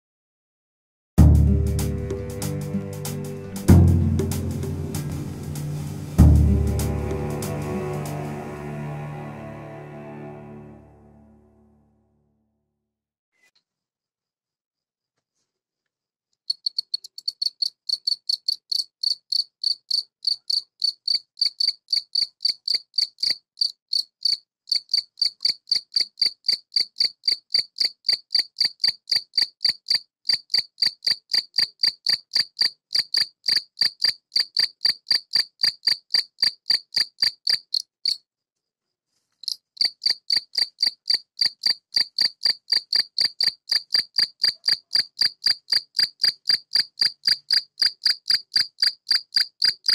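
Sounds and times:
cricket chirping: 16.5 - 38.2, 39.4 - 49.9.

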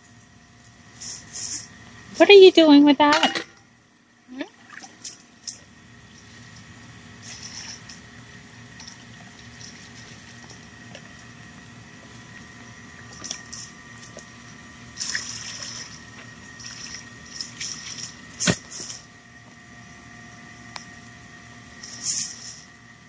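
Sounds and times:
water splashing and dripping: 8.8 - 10.7, 15.0 - 18.4.

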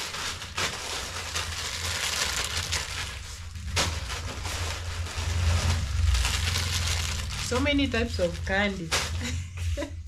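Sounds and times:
plastic packets crinkling: 0.0 - 9.3.

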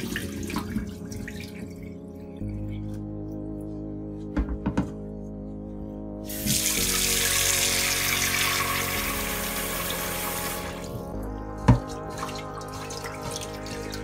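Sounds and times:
tap water running into pot: 6.3 - 10.9, 11.7 - 14.0.

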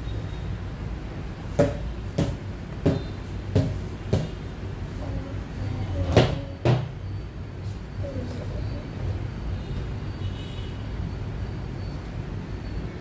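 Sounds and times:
sharp knocks: 1.6 - 4.4, 6.2 - 6.9.

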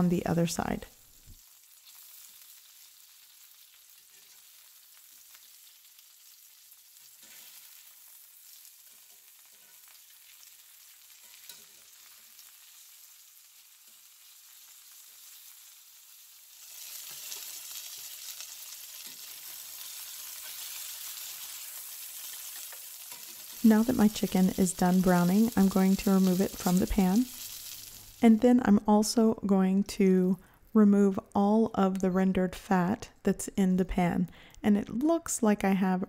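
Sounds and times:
chicken sizzling in hot oil: 0.7 - 28.2
metal tongs turning meat: 10.9 - 12.4, 16.6 - 28.0.

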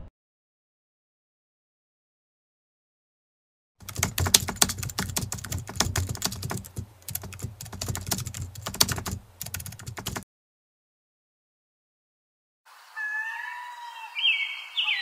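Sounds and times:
keyboard typing: 3.8 - 10.2.

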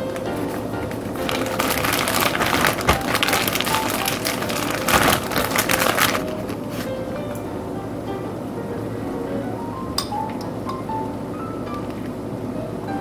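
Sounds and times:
plastic bag crinkling: 0.9 - 6.9.

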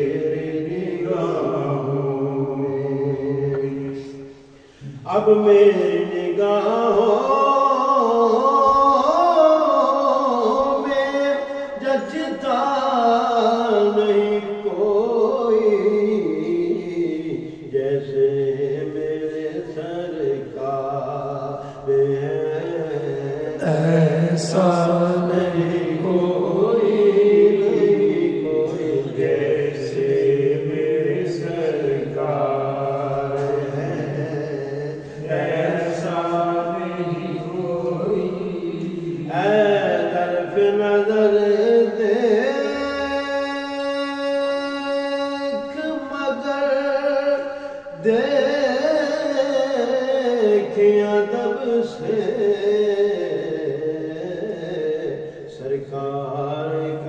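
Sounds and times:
man singing unaccompanied: 0.0 - 57.0.

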